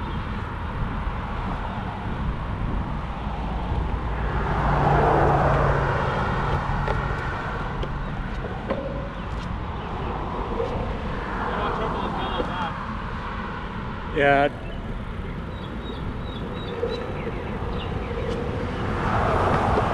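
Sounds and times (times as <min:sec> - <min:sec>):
wind on microphone: 0:00.0 - 0:19.9
small wheels rolling on concrete: 0:13.6 - 0:19.9.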